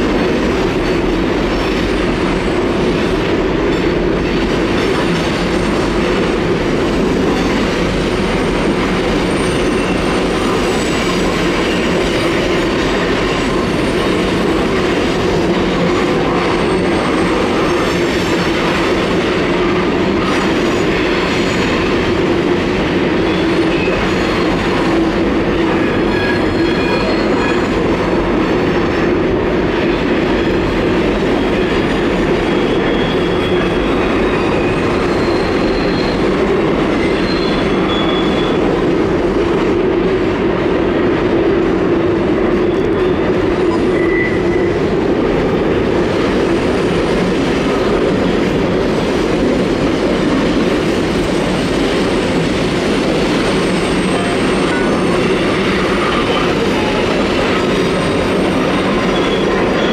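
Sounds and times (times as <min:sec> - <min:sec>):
train wheels rumbling on steel bridge: 0:00.0 - 0:59.9
high-pitched wheel squeals: 0:32.5 - 0:36.3, 0:37.0 - 0:38.7, 0:43.7 - 0:44.8.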